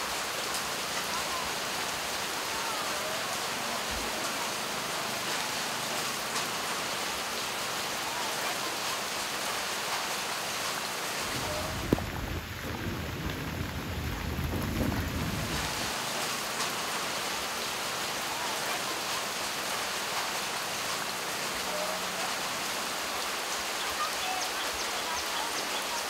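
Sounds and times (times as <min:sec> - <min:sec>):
heavy rain: 0:00.0 - 0:26.0
low rumble: 0:11.3 - 0:15.8.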